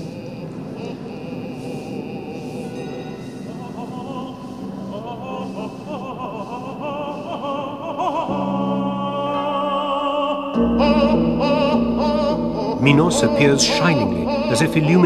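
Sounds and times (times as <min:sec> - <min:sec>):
operatic singing with vibrato: 0:00.0 - 0:15.0
sustained low notes: 0:08.2 - 0:15.0.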